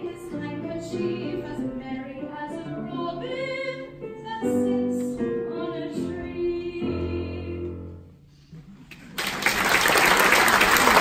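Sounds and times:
audience applauding: 8.9 - 11.0.

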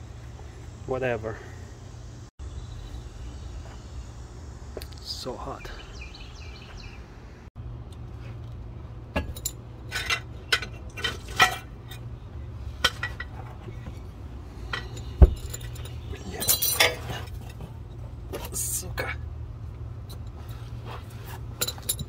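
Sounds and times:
metal hand tools clinking: 14.6 - 17.6
heavy thump: 15.2 - 15.6.

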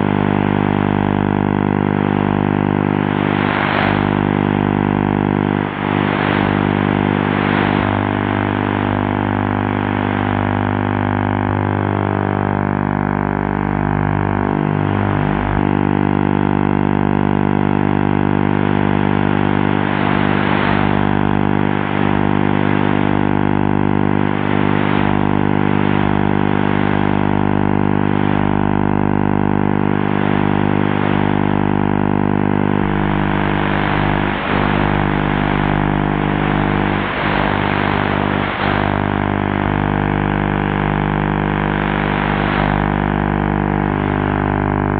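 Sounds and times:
static hiss: 0.0 - 44.9
tv signal buzzing drone: 0.0 - 44.9.

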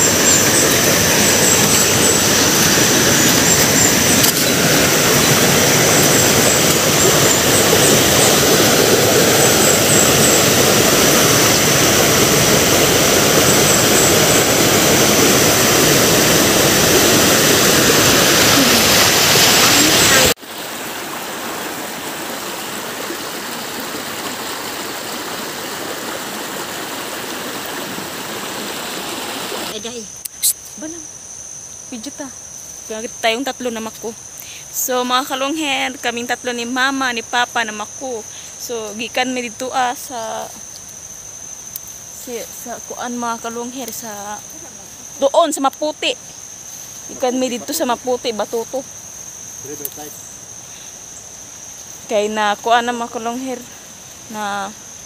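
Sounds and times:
rushing river water: 0.0 - 29.7.

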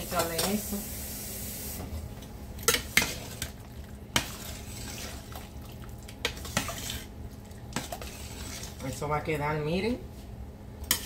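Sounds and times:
ladle stirring stew: 2.1 - 9.4.

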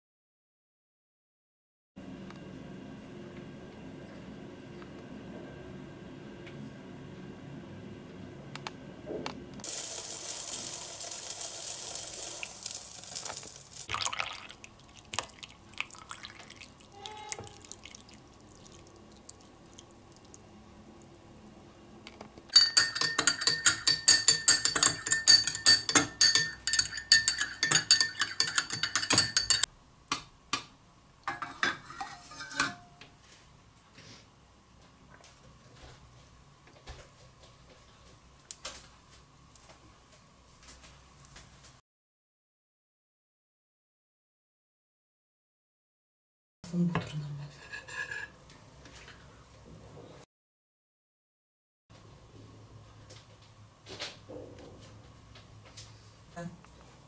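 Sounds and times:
spoon clinking in a glass: 22.5 - 29.7.

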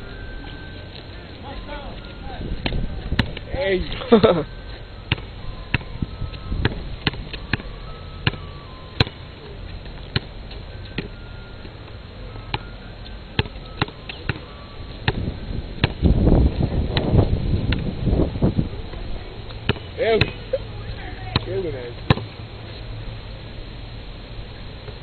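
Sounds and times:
low rumbling noise: 0.0 - 20.0
basketball bouncing on asphalt: 1.4 - 3.9, 4.6 - 17.9, 18.9 - 22.4.

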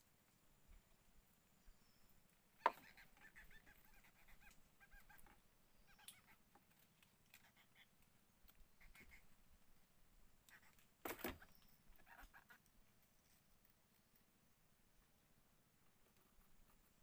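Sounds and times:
bird chirping: 0.3 - 9.8, 10.5 - 14.4.

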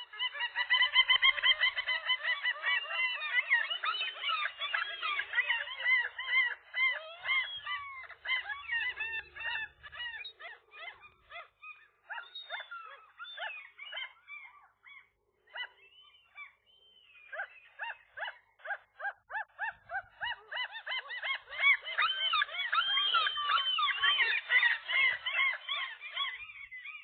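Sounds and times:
gulls mewing calls: 0.0 - 27.0.

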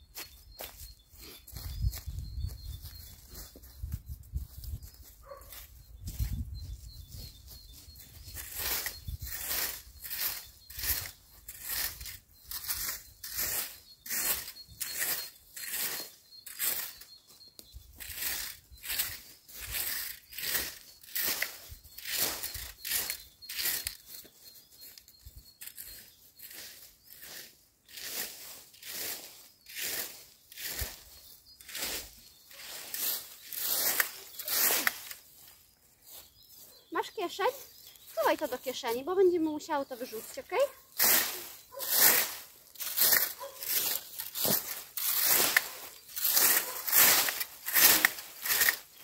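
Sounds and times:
rake scraping dry leaves: 0.1 - 49.0
faint leaf rustles: 18.0 - 49.0.

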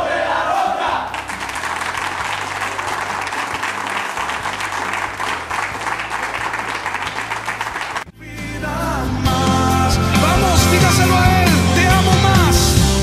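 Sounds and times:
music: 0.0 - 13.0
people applauding: 1.1 - 8.1.

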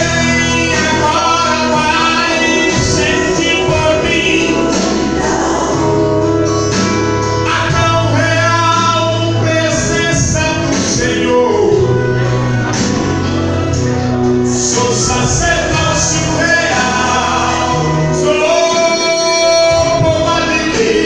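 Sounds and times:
instrumental backing with bass notes: 0.0 - 21.0
voices singing gospel song: 0.0 - 21.0.

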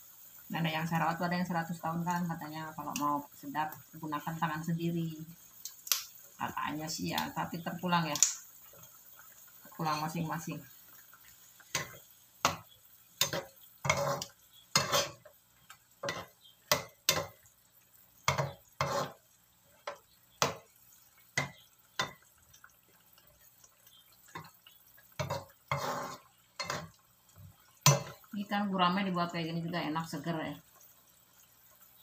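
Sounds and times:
spatula scraping a wok: 11.7 - 15.4, 16.0 - 17.4, 18.3 - 19.9, 25.2 - 27.0.

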